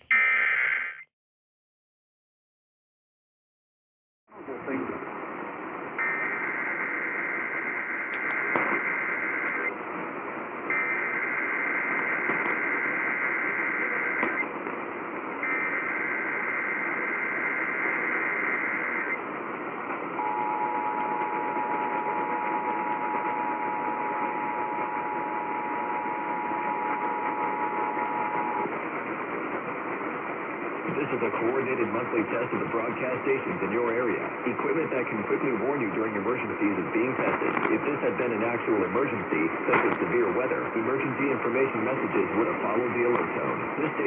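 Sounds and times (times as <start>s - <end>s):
radio static hiss: 4.3s - 44.0s
steady two-tone attention signal: 20.2s - 28.7s.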